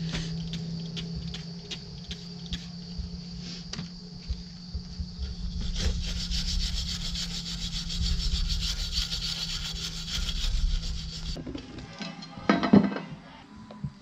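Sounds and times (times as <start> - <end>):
cutting tool rasping: 5.5 - 11.4.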